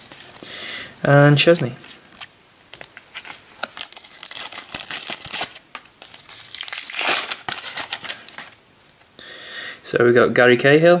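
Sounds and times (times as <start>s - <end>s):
packet crinkling and tearing: 1.4s - 9.1s.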